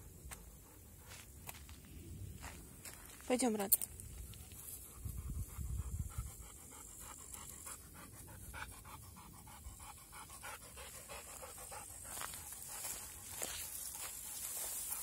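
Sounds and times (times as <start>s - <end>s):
dog panting: 4.3s - 15.0s.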